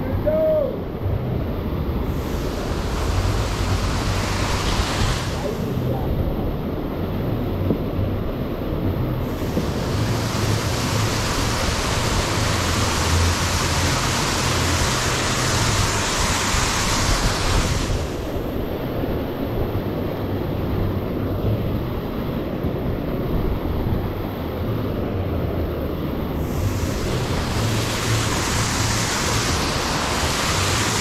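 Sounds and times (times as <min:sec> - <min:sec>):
wind buffeting microphone: 0:00.8 - 0:31.0
steady hiss: 0:01.9 - 0:07.1, 0:09.2 - 0:22.5, 0:25.7 - 0:31.0.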